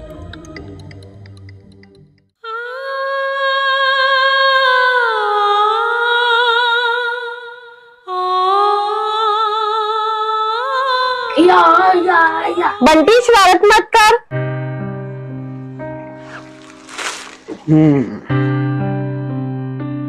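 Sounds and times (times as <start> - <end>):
person humming a melody: 17.6 - 18.5.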